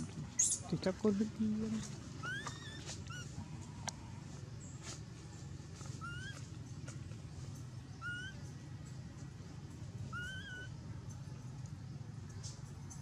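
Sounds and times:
low background rumble: 0:00.0 - 0:13.0
monkey coo calls: 0:01.8 - 0:03.9, 0:05.8 - 0:06.5, 0:08.0 - 0:08.4, 0:10.0 - 0:10.8.

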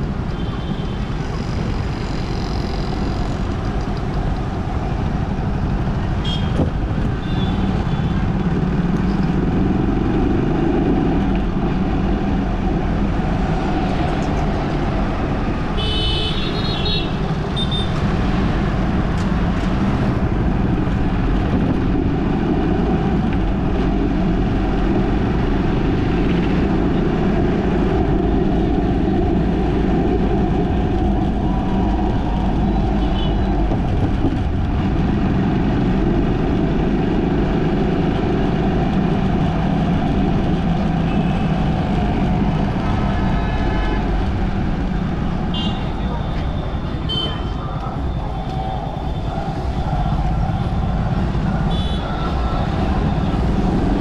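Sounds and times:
road traffic rumbling: 0:00.0 - 0:54.0.

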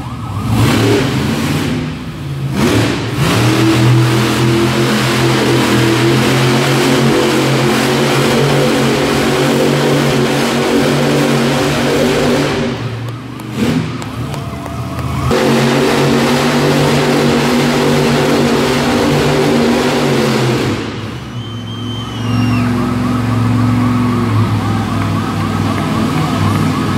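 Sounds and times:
siren wailing up and down: 0:00.0 - 0:01.0, 0:22.0 - 0:26.9
monster truck engine running: 0:00.0 - 0:26.9.

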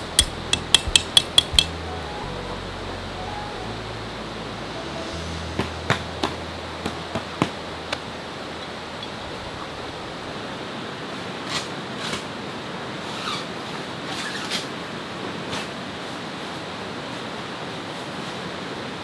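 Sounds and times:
fast-flowing river rushing: 0:00.0 - 0:14.1.

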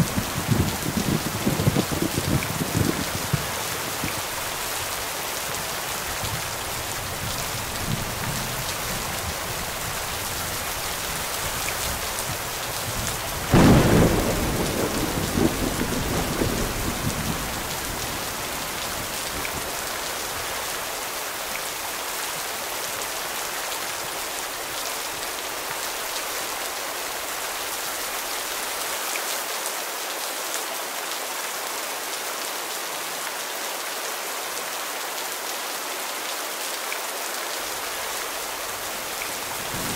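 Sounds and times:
steady rain falling: 0:00.0 - 0:39.9
thunderclap rumbling: 0:12.9 - 0:19.6, 0:39.6 - 0:39.9.

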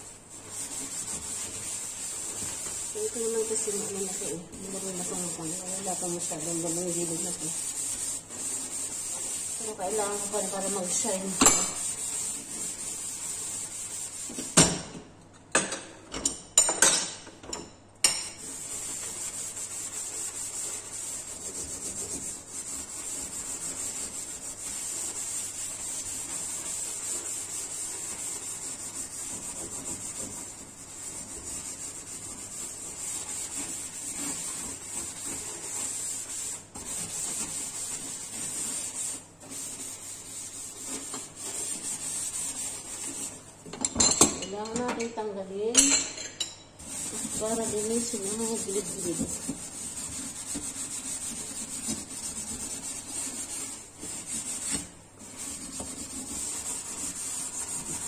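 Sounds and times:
steel wool scrubbing metal: 0:00.0 - 0:14.4, 0:18.4 - 0:43.5, 0:46.8 - 0:58.0.

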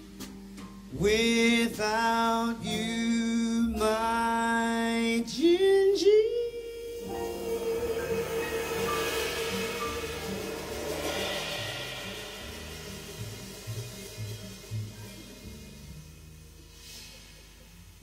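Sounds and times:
man singing long wordless notes: 0:01.0 - 0:10.3
cymbals ringing: 0:06.8 - 0:16.4
jazz quartet playing: 0:06.8 - 0:16.8.

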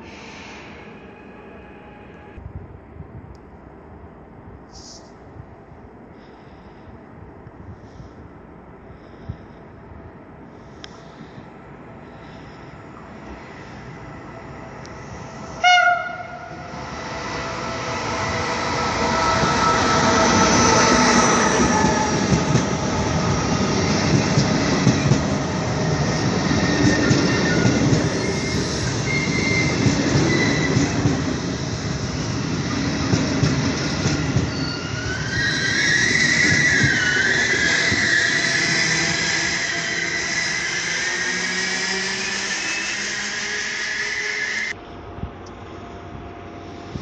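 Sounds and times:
train rumbling past: 0:00.0 - 0:47.0
locomotive horn blast: 0:15.6 - 0:16.6
high-pitched wheel squeal: 0:26.6 - 0:30.9, 0:34.5 - 0:44.8.

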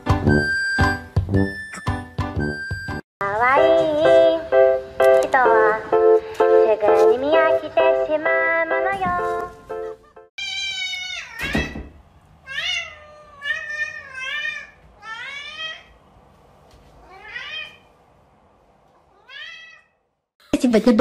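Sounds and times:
cat meowing: 0:10.4 - 0:11.8, 0:12.4 - 0:16.0, 0:17.0 - 0:17.9, 0:19.0 - 0:20.0.

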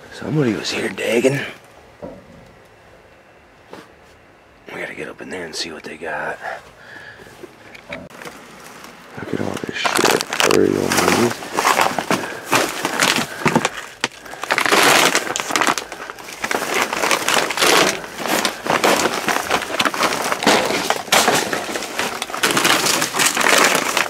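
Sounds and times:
plastic bags crinkling: 0:08.1 - 0:24.0
boxes clattering and knocking: 0:09.8 - 0:24.0.

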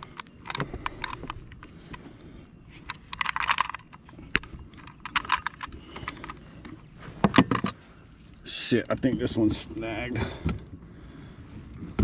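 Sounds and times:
plastic clicks and rattles: 0:00.0 - 0:02.0, 0:02.8 - 0:07.8.

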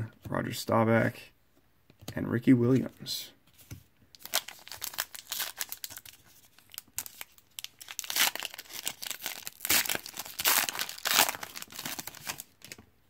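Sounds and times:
wrapper tearing and crinkling: 0:04.2 - 0:12.8.

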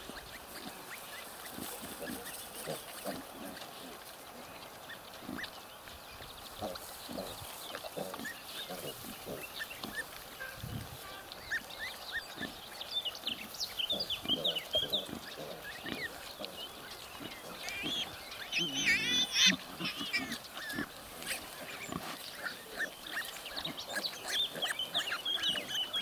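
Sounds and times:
pig grunting: 0:01.6 - 0:04.5, 0:06.6 - 0:10.0, 0:13.9 - 0:26.0
piglets squeaking: 0:13.4 - 0:26.0.

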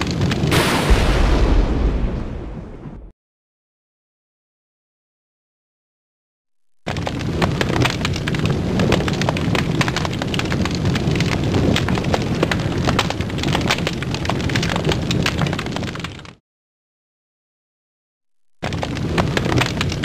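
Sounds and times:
fire crackling and popping: 0:00.0 - 0:02.8, 0:06.7 - 0:16.4, 0:18.5 - 0:20.0
low rumble: 0:00.5 - 0:03.1.

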